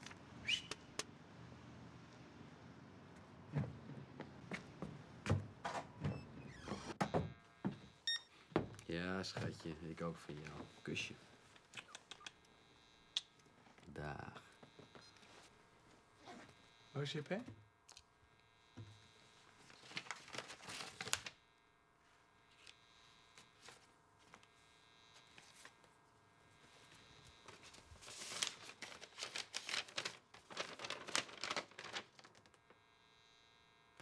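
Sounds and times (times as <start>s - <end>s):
paper crinkling: 19.6s - 21.4s, 27.4s - 32.7s
paper rustling: 19.6s - 21.4s, 27.4s - 32.7s
envelope being torn open: 28.1s - 32.5s.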